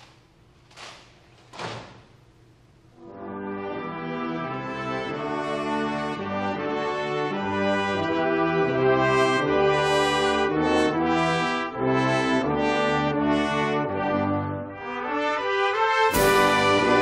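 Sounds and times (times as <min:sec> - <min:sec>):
brass band playing: 0:03.0 - 0:17.0.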